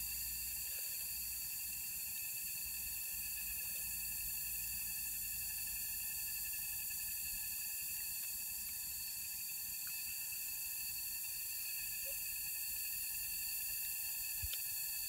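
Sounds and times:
insects droning: 0.0 - 15.0
faint small clicks: 14.4 - 14.7.

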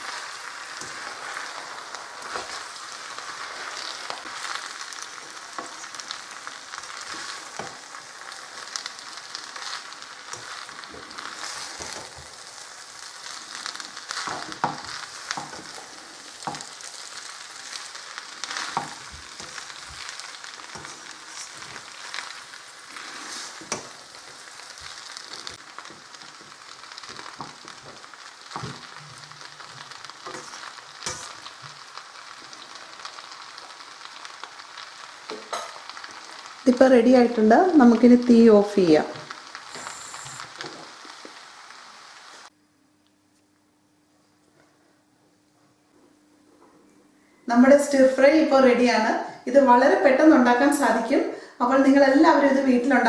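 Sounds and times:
stir fry sizzling in a wok: 0.0 - 42.6, 47.5 - 53.0
spatula scraping a pan: 13.7 - 31.8.

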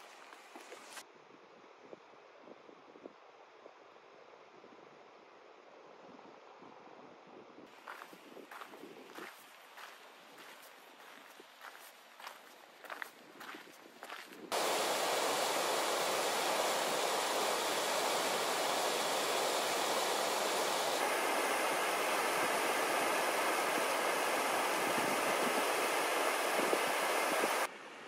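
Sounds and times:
stream rushing over rocks: 14.5 - 27.7.

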